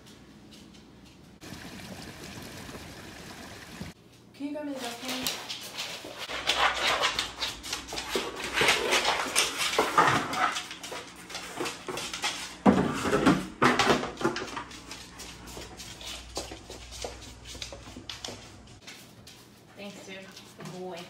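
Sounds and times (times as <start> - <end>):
dog claws clicking on hardwood floor: 5.0 - 12.6, 13.6 - 19.4.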